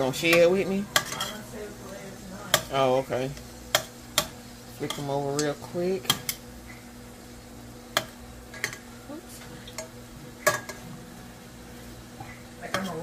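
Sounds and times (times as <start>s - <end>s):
shrimp sizzling: 0.0s - 13.0s
metal tongs clicking on a pan: 0.2s - 1.4s, 2.5s - 2.8s, 3.7s - 6.4s, 12.7s - 13.0s.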